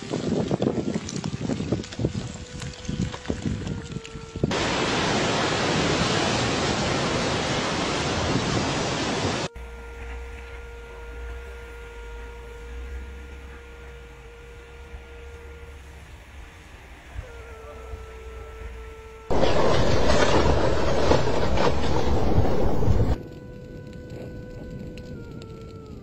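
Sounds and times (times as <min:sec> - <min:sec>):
ocean surf and steam rushing: 0:04.5 - 0:09.5, 0:19.3 - 0:23.2
faint steady hum: 0:09.4 - 0:26.0
low rumble: 0:19.3 - 0:25.6.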